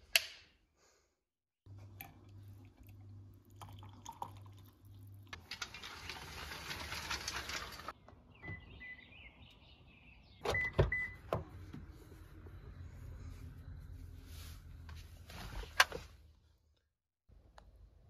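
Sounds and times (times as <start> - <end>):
coffee pouring and splashing: 1.8 - 8.0.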